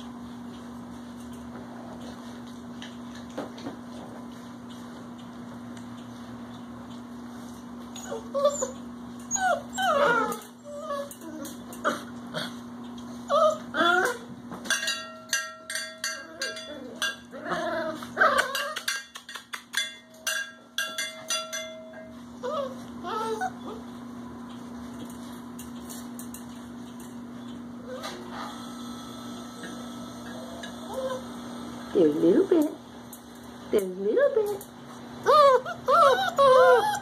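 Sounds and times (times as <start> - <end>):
puppies whining and yipping: 7.4 - 12.2, 13.1 - 14.4, 16.2 - 19.0, 21.9 - 24.1, 27.8 - 28.3, 30.4 - 31.4, 35.2 - 37.0.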